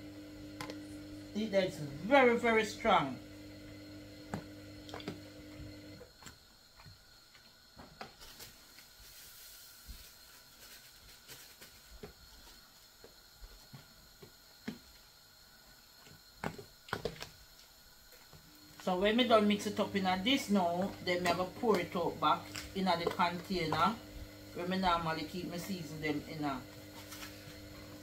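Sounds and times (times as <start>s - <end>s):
low steady hum: 0.0s - 7.3s, 17.4s - 28.0s.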